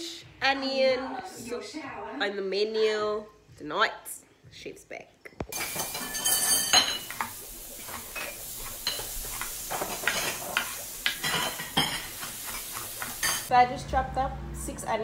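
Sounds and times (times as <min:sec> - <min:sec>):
dishes and cutlery clinking: 0:05.4 - 0:13.5.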